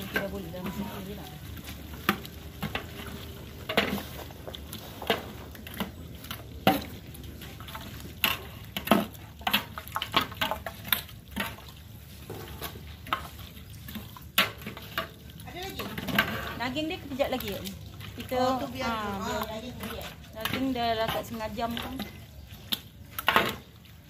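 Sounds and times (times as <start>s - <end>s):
meat cooking in juices: 0.0s - 24.0s
metal ladle scraping a pot: 7.9s - 22.4s.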